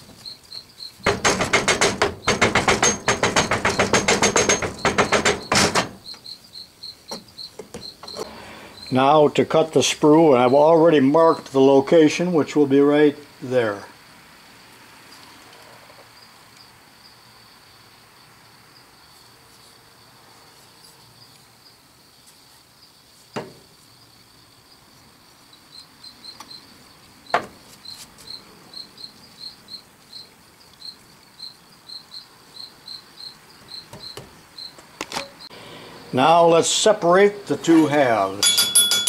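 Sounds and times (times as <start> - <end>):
high-pitched insect chirping: 0.0 - 9.2, 16.1 - 35.5
sharp knocks: 1.0 - 6.1.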